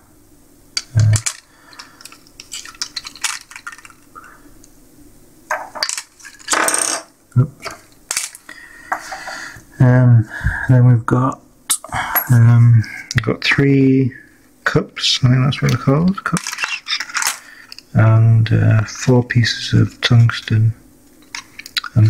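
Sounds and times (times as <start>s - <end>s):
plastic caps clicking and clinking: 0.8s - 4.1s, 16.3s - 17.9s, 21.2s - 22.0s
plastic packaging rustling: 1.2s - 4.4s.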